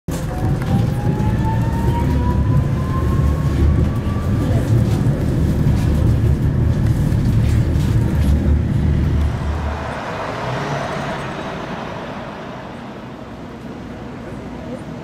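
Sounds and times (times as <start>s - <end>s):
street traffic: 0.1s - 15.0s
tram rumbling on track: 0.1s - 15.0s
vehicle passing: 6.9s - 14.6s.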